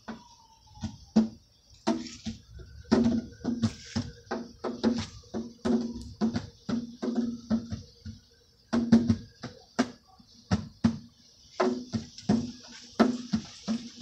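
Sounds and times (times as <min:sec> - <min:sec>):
hollow drum-like knocking: 0:02.9 - 0:14.0.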